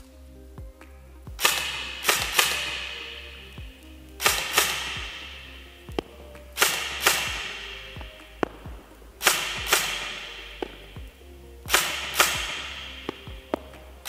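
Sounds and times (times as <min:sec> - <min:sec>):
airsoft gun shots echoing: 0:01.4 - 0:03.4, 0:04.2 - 0:11.0, 0:11.7 - 0:13.6.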